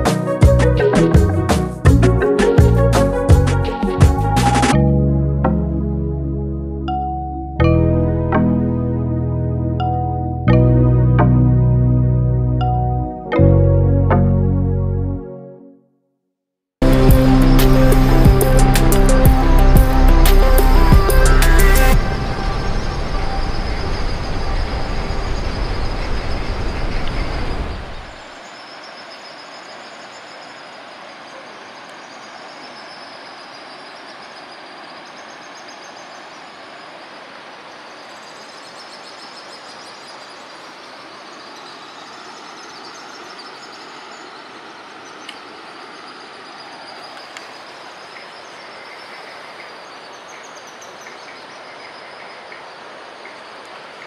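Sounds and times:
background music: 0.0 - 15.8, 16.8 - 23.0.

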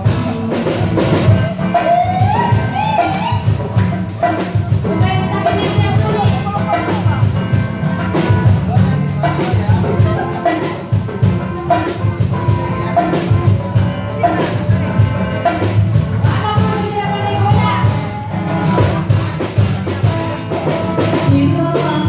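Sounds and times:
acoustic guitar: 0.0 - 22.0
drum kit beat: 0.0 - 22.0
live band playing upbeat song: 0.0 - 22.0.

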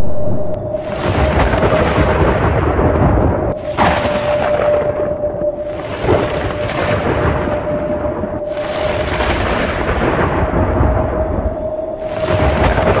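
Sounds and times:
steady held tone: 0.0 - 1.8
rolling thunder: 0.0 - 13.0
rain-like hiss: 0.7 - 13.0.

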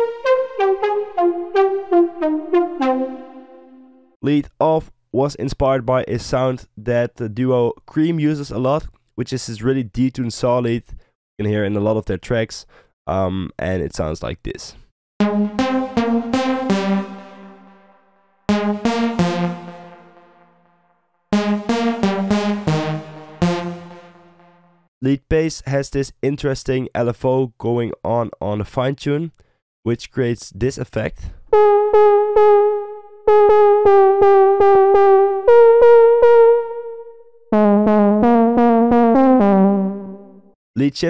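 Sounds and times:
detuned saw synth lead: 0.0 - 4.0, 18.5 - 20.7, 21.3 - 24.8, 31.6 - 40.5.

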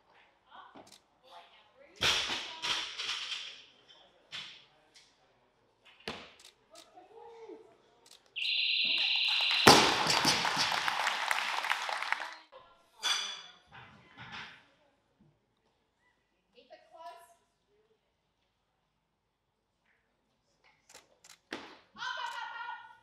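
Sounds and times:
electronic beep: 8.4 - 10.7
crowd cheering: 8.4 - 12.5.

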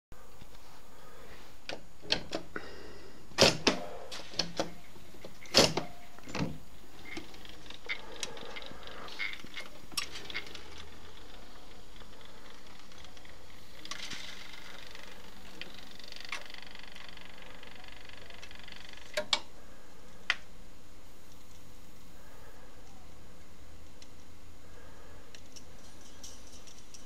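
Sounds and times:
faint steady hum: 0.1 - 27.0
jukebox clicking and clunking: 1.7 - 2.5, 3.4 - 10.8.

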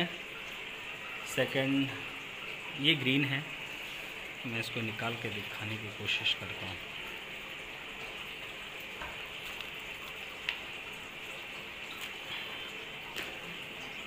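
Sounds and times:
soil and plastic rustling: 9.0 - 13.6.

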